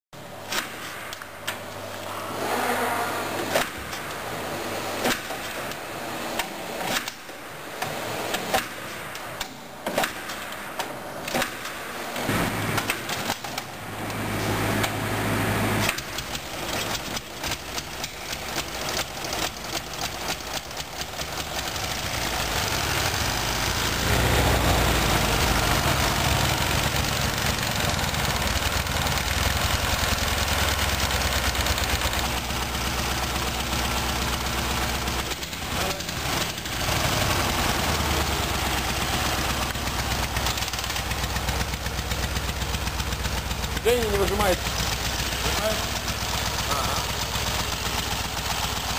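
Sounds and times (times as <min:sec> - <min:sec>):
motorcycle engine kick-starting: 0:15.8 - 0:48.9
person speaking: 0:43.8 - 0:44.7, 0:46.6 - 0:47.2.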